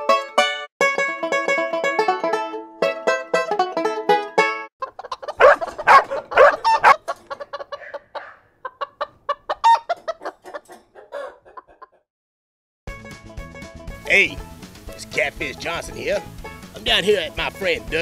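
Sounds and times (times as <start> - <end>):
chickens clucking: 4.8 - 12.0.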